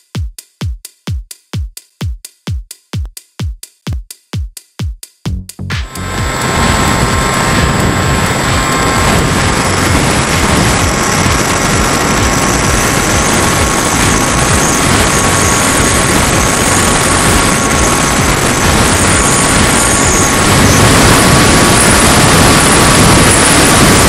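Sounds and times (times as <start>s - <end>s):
electric motor and propeller whine: 5.8s - 24.0s
wind rush buffeting camera: 5.8s - 24.0s.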